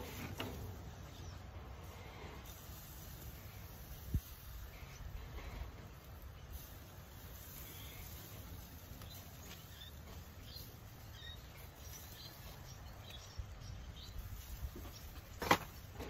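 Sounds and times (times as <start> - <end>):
wind rumble on microphone: 4.0 - 4.6.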